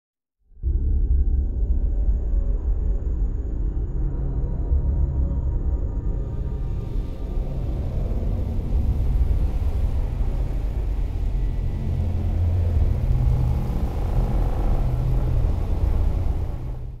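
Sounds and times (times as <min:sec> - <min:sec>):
low droning rumble: 0:00.6 - 0:17.0.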